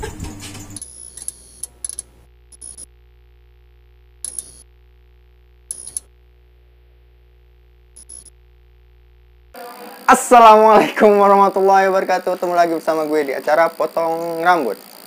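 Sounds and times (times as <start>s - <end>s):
glitchy static bursts: 0.8s - 15.0s.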